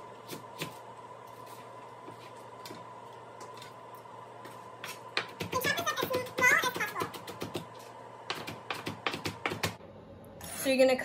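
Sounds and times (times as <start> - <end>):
knife chopping on cutting board: 0.2 - 0.8, 4.8 - 9.8.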